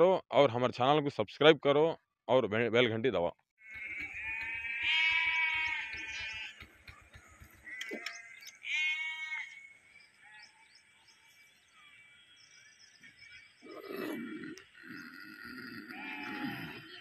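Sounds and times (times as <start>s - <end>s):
livestock bleating: 3.6s - 6.8s, 7.6s - 9.6s, 14.9s - 17.0s.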